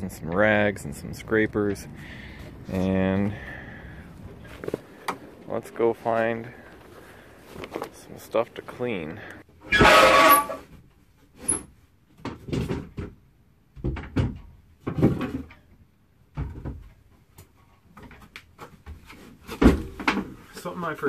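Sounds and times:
wooden boards knocking and clattering: 12.2s - 15.6s, 18.0s - 20.4s.

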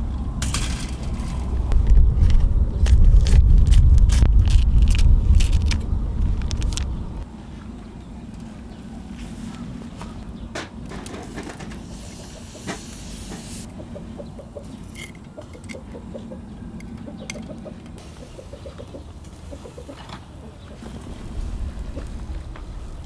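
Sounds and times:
bird calls: 7.8s - 10.7s, 13.7s - 23.0s.

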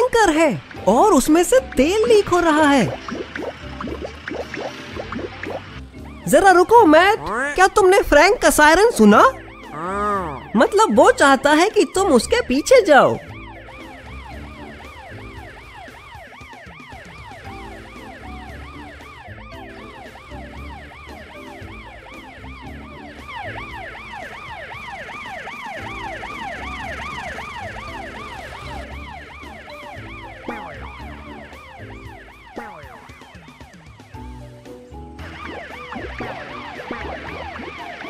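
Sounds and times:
background music: 0.0s - 38.0s
cartoon siren wailing: 6.2s - 34.0s, 35.4s - 38.0s.

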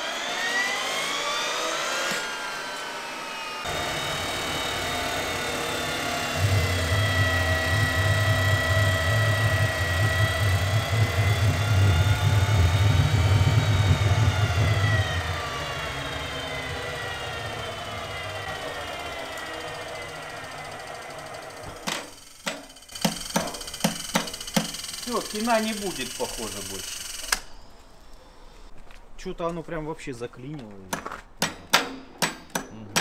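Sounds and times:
turbine engine whine: 0.0s - 28.1s
low rough rumble: 3.7s - 20.5s.

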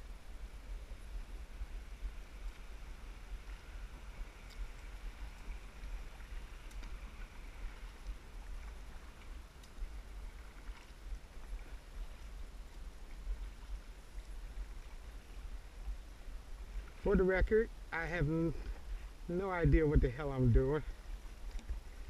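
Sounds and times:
low unsteady rumble: 0.0s - 22.0s
water lapping against kayak hull: 0.8s - 17.2s, 17.8s - 22.0s
faint ticks: 2.0s - 17.0s, 20.8s - 22.0s.

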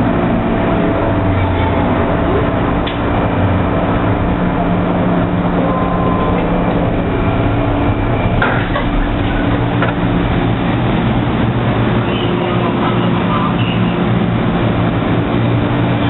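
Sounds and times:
low motor hum: 0.0s - 16.0s
metro train rumble: 0.0s - 16.0s.

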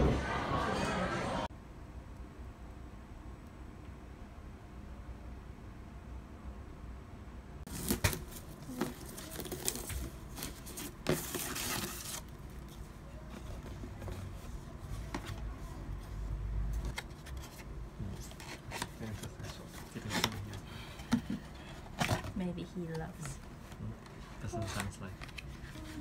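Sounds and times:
cardboard rustling and scraping: 7.7s - 20.5s.

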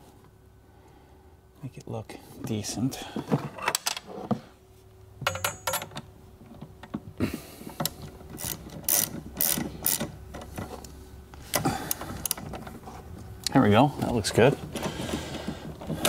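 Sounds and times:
socket ratchet clicking: 8.4s - 10.1s.

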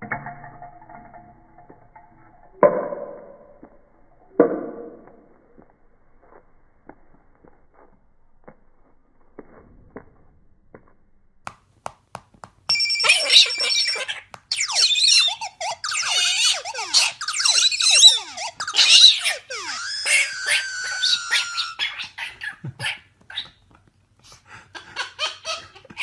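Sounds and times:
faint taps and clicks: 10.7s - 12.7s
electronic sound effects from phone: 12.7s - 21.9s.

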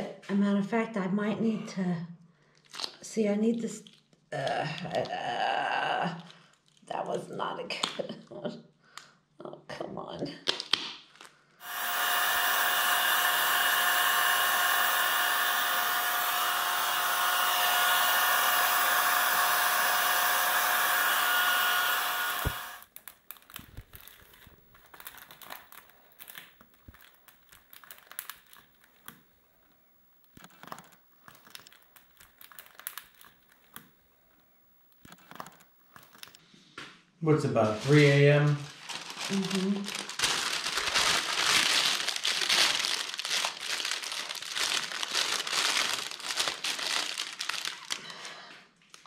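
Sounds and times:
hot-air blower fan whining: 11.6s - 22.8s
plastic wrap crinkling: 21.7s - 36.4s, 37.5s - 49.0s.

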